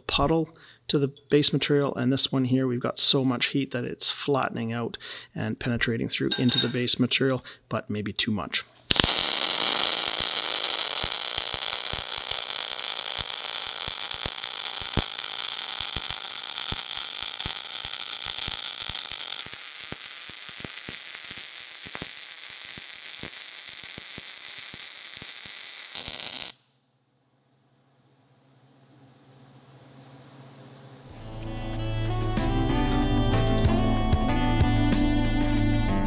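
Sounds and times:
welding arc sizzling and crackling: 8.9 - 26.7.

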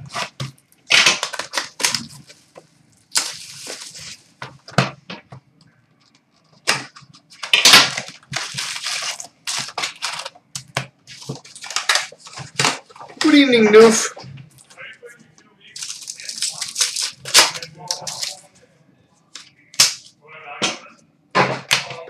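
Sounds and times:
plastic wrap crackling and tearing: 0.0 - 4.7, 6.0 - 13.9, 15.8 - 18.5.

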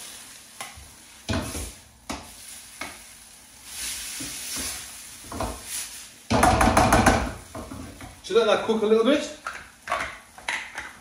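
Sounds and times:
chicken sizzling in a pan: 0.0 - 11.0
utensil knocking against pan: 6.3 - 7.8.

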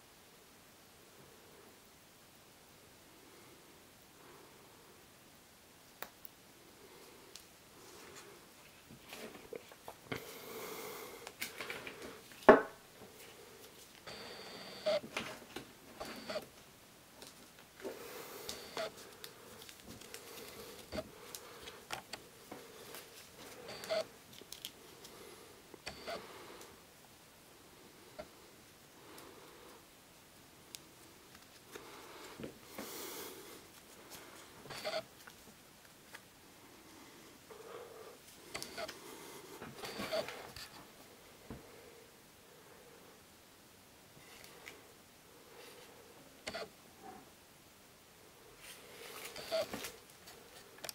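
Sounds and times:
soft rustle: 7.0 - 10.1, 18.8 - 25.4, 48.4 - 50.8
camera autofocus motor whirring: 25.8 - 26.2, 49.4 - 49.7.

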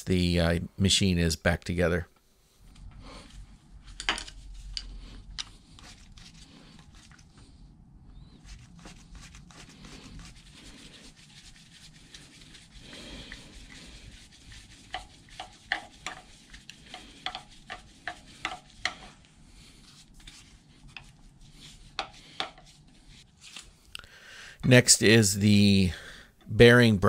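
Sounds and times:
screwdriver rubbing: 8.4 - 19.2.

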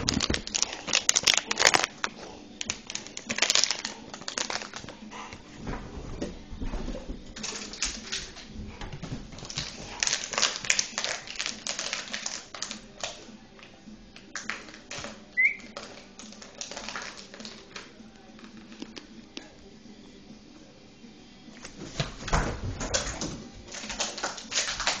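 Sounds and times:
puppy chewing plastic bottle: 0.0 - 5.0, 9.3 - 19.1, 22.9 - 25.0.

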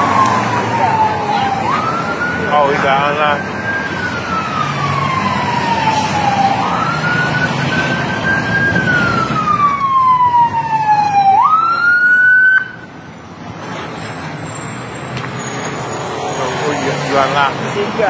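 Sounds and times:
ambulance siren wailing: 0.0 - 13.1
road traffic noise: 0.0 - 18.0.

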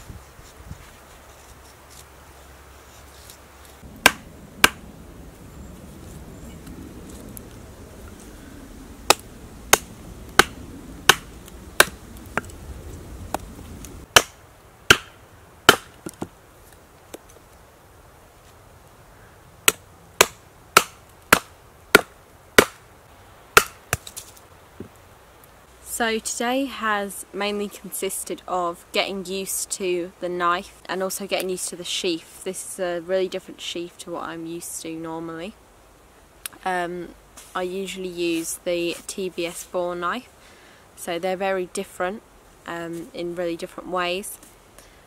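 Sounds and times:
knife striking wood: 4.0 - 4.8, 9.1 - 12.5, 14.2 - 16.3, 19.7 - 22.8, 23.6 - 24.3.

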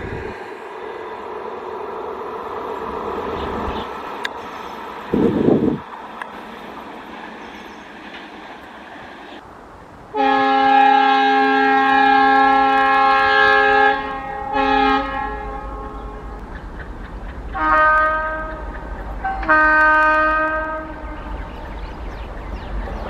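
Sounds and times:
locomotive air horn blasts: 10.1 - 16.3, 17.6 - 21.5.

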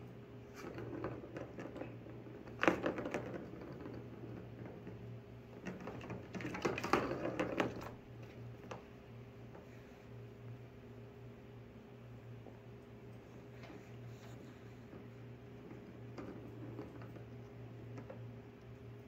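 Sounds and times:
steady low hum: 0.0 - 19.0
plastic ball rattling around track: 0.6 - 5.0, 5.6 - 8.0.

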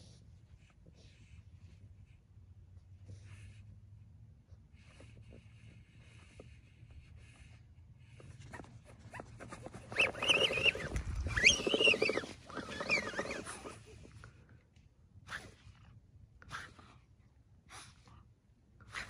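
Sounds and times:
small dog calling: 9.2 - 13.8.

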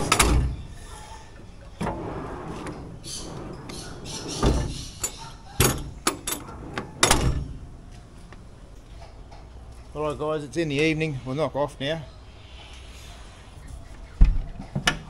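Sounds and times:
metal drawer sliding: 0.0 - 0.6, 1.8 - 8.2
drawer clunks: 1.8 - 7.6.

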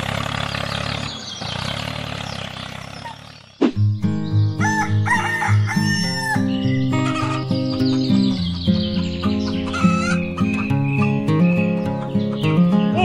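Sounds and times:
rooster crowing: 4.6 - 7.5.

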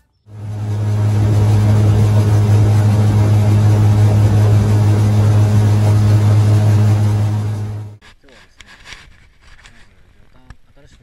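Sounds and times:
boat motor running: 0.3 - 8.0
rushing noise: 0.3 - 8.0.

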